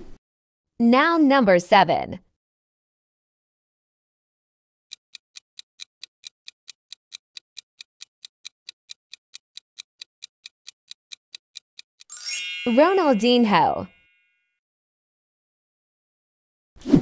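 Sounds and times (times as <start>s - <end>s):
clock ticking fast: 4.9s - 12.1s.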